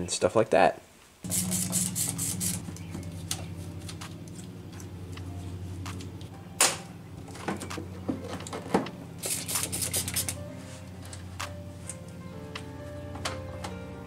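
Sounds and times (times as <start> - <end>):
spray bottle squirting: 1.2 - 2.9, 9.2 - 10.4
cloth rubbing engine parts: 1.2 - 13.0
steady low hum: 1.2 - 14.0.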